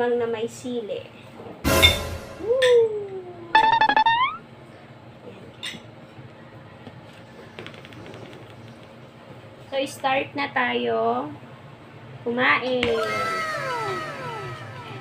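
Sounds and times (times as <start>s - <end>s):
buzzing tone bending upward: 3.6s - 4.4s, 13.0s - 15.0s
falling sliding tone: 3.6s - 4.4s.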